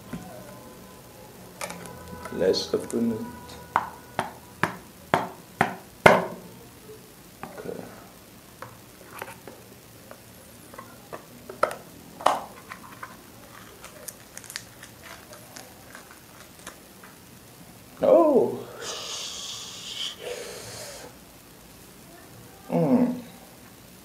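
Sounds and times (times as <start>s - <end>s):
seal crinkling: 9.0s - 17.4s.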